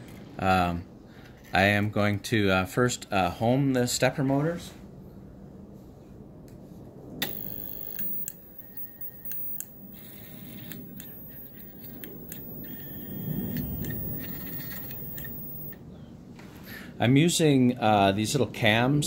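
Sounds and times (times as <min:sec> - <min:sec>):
sharp mechanical clicks: 0:07.2 - 0:15.8
stepper motors whining: 0:07.2 - 0:15.8.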